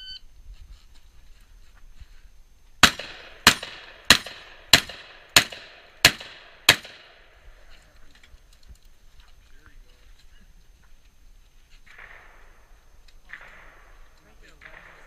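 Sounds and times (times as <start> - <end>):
gunshots with short echo: 2.8 - 7.2, 11.9 - 15.0.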